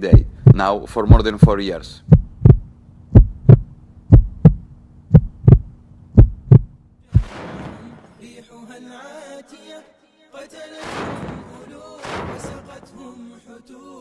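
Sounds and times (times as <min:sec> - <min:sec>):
heartbeat thumps: 0:00.0 - 0:07.3
low steady hum: 0:00.0 - 0:07.3
music: 0:08.2 - 0:14.0.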